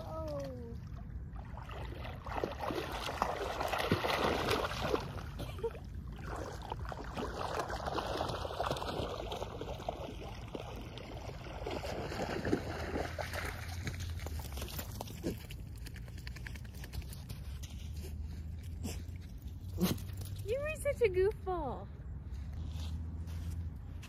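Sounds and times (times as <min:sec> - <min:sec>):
shallow water splashing: 0:00.0 - 0:15.8.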